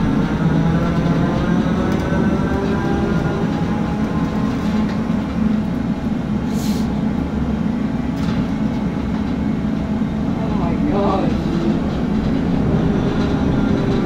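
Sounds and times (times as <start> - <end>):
low machinery drone: 0.0 - 14.0
short hiss: 6.5 - 6.9.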